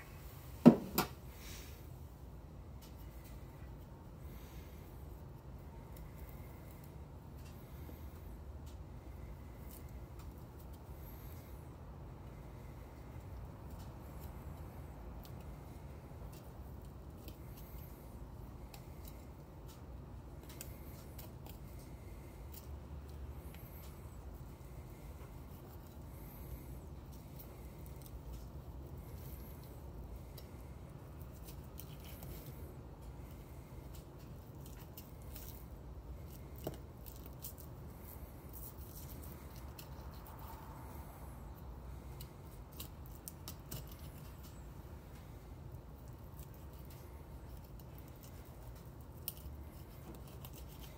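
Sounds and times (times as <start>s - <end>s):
low steady hum: 0.0s - 50.9s
knife clicking and scraping bone: 42.1s - 44.6s.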